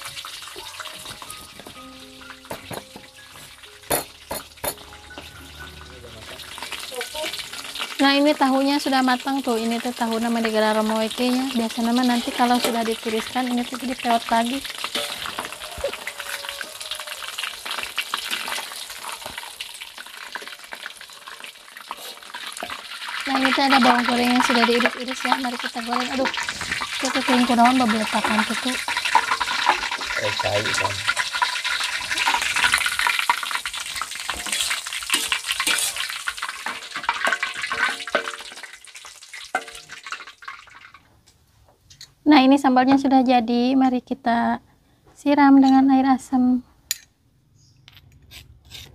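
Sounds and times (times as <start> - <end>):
tofu sizzling in hot oil: 0.0 - 41.0.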